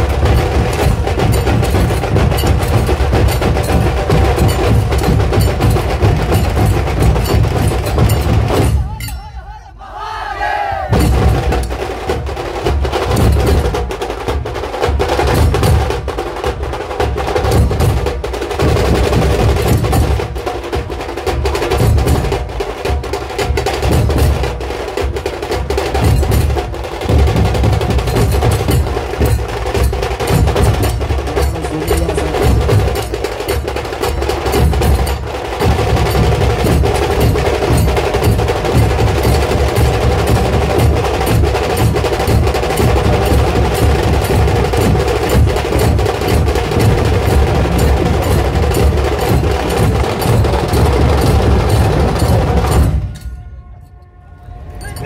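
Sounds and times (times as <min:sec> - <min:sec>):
rapid drum strokes and rolls: 0:00.0 - 0:09.3, 0:10.8 - 0:53.4
held tone: 0:08.8 - 0:09.8, 0:53.0 - 0:55.0
heavy pulsing bass beat: 0:30.3 - 0:33.2.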